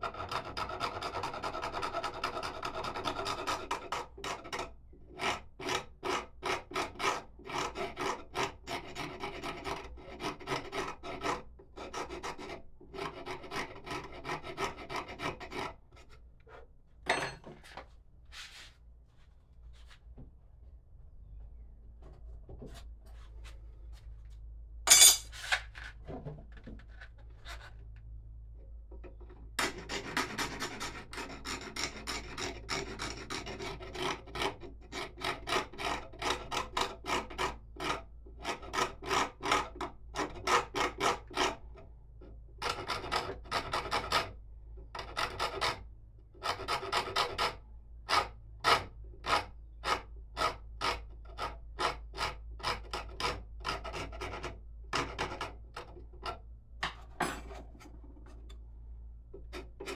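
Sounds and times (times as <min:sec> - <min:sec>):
hand tool scraping wood: 0:59.4 - 0:59.9.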